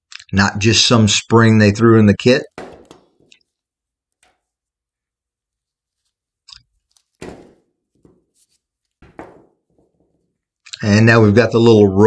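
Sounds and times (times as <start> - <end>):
gloved hands rustling: 2.6 - 10.7.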